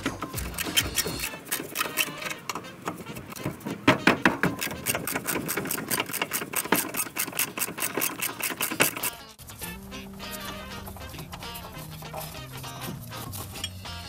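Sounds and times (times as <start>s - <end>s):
ratchet wrench clicking: 0.3s - 2.3s, 4.6s - 9.2s.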